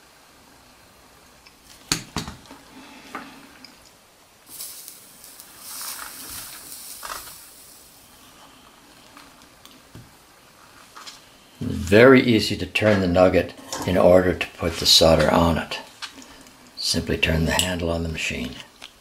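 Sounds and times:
soldering iron sizzling: 4.4 - 11.4.

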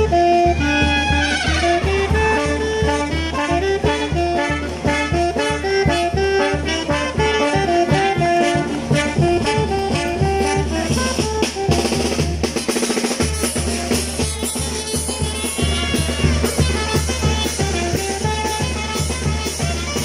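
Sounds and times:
brass band music: 0.0 - 20.0
steady drum beat: 0.0 - 20.0
quick drum strokes: 0.7 - 20.0.

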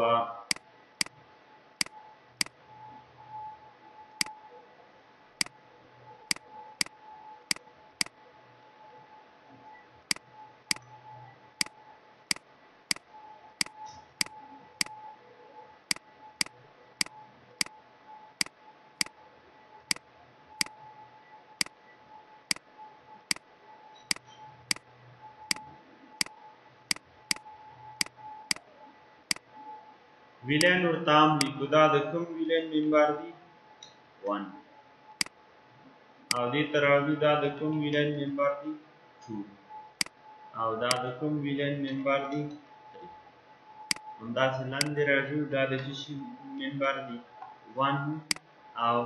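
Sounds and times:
faint steady tone: 0.0 - 49.0
computer mouse clicking: 6.3 - 8.2, 10.1 - 11.0, 11.6 - 15.0, 24.0 - 24.8, 25.5 - 28.7.

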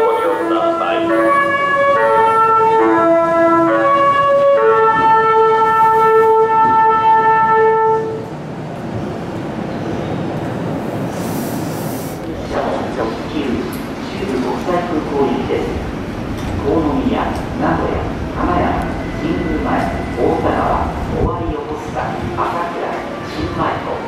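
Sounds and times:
train horn playing a melody: 0.0 - 8.3
train running noise: 0.0 - 24.0.

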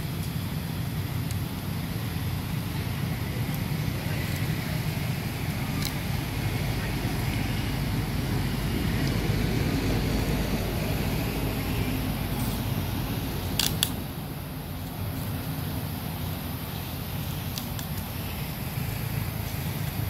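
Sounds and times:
low rumbling background noise: 0.0 - 20.0
sharp clicks: 13.6 - 14.1.

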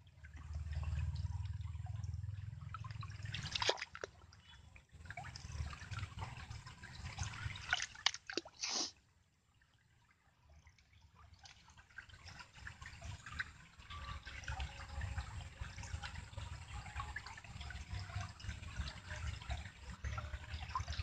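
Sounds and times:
water dripping: 0.1 - 8.7
hands splashing in water: 3.4 - 4.1, 7.6 - 8.9.

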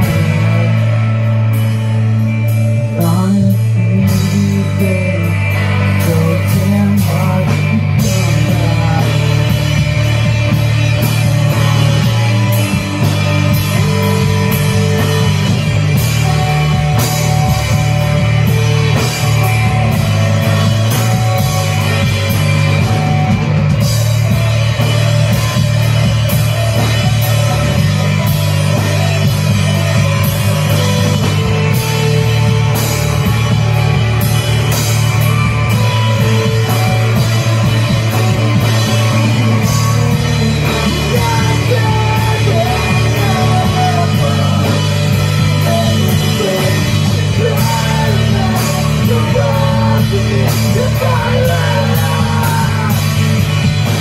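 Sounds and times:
live rock band: 0.0 - 54.0.

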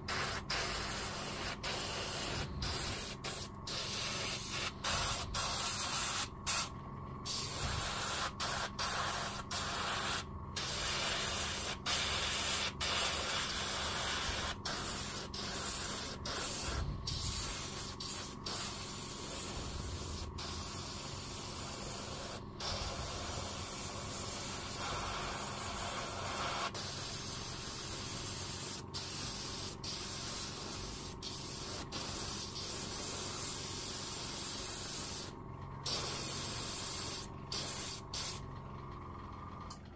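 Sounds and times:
airbrush spraying hiss: 0.0 - 6.7, 7.3 - 38.4
faint steady hum: 0.0 - 39.9.

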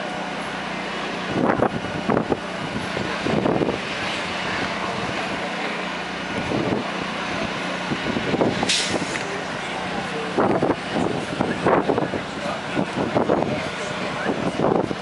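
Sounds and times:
distant truck engine hum: 0.0 - 15.0
wind on microphone: 1.2 - 5.4, 6.3 - 9.2, 10.2 - 15.0.

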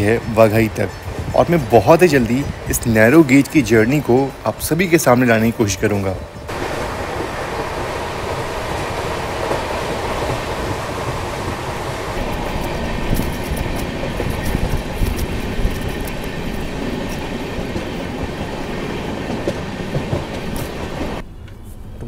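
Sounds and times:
train rumbling on track: 0.0 - 22.0
wheels clicking on track: 6.5 - 22.0.

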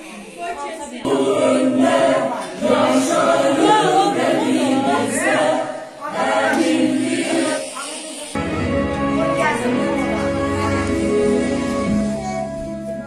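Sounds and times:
children singing together: 1.0 - 8.3.

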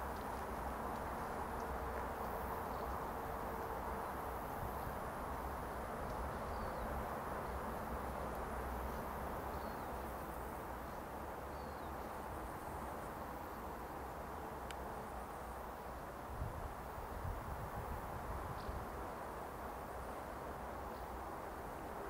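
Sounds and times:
wind rumble on microphone: 0.0 - 9.9, 16.2 - 19.2
steady hiss: 0.0 - 22.0.

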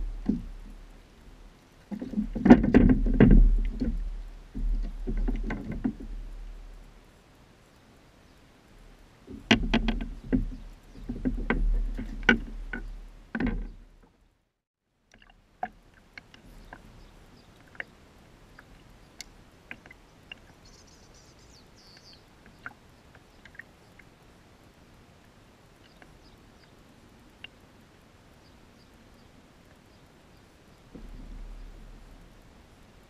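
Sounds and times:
knocks and bumps on plastic kayak: 0.0 - 0.9, 1.9 - 6.7, 9.3 - 14.0, 30.9 - 32.2
low rumble: 0.0 - 1.6.

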